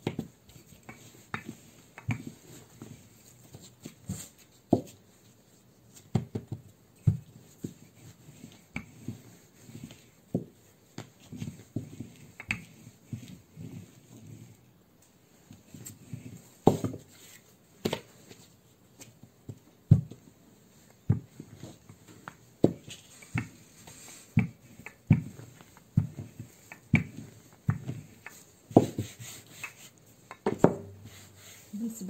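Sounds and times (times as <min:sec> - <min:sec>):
rolling pin thumping: 0:06.1 - 0:07.8, 0:16.6 - 0:17.2, 0:19.4 - 0:20.3, 0:21.0 - 0:31.4.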